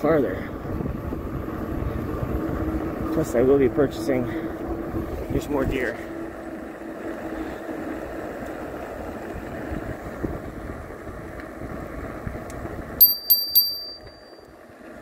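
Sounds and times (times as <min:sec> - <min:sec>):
electric bike road and wind noise: 0:00.0 - 0:15.0
bicycle bell ringing: 0:13.0 - 0:14.6.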